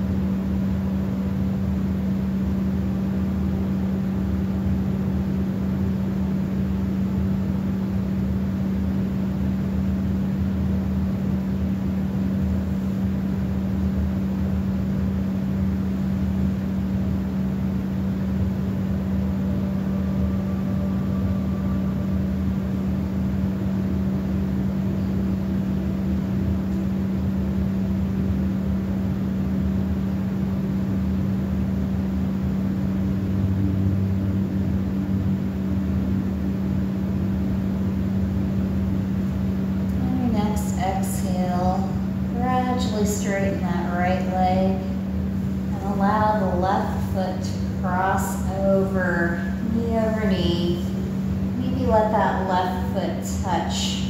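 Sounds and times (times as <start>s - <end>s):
faint rumble: 0.0s - 54.0s
steady low hum: 0.0s - 54.0s
faint higher tone: 19.0s - 25.2s.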